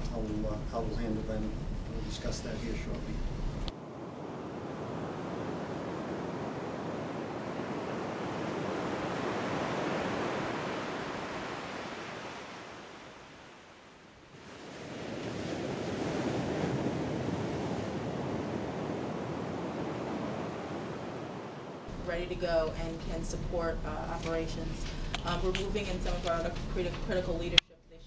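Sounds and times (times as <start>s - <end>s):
storm wind and surf rushing: 1.5s - 22.1s.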